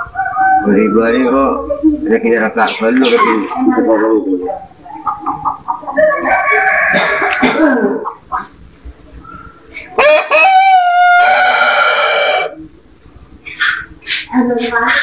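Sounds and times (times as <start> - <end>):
rooster crowing: 0.0 - 1.4, 6.0 - 7.6, 10.0 - 12.6.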